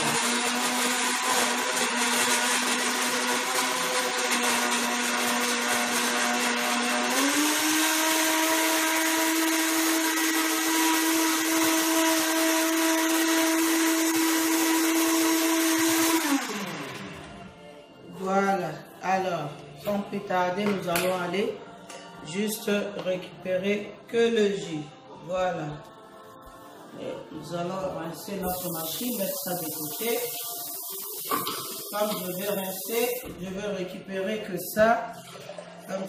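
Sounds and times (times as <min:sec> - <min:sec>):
countertop blender running: 0:00.0 - 0:17.4, 0:28.5 - 0:33.3.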